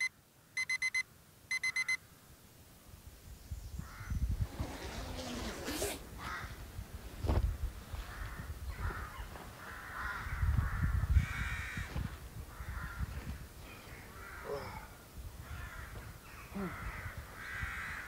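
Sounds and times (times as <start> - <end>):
bumping and rustling of tent: 4.4 - 9.6
bird cawing harshly: 5.6 - 6.6, 8.1 - 11.9, 12.5 - 13.0, 13.9 - 18.0.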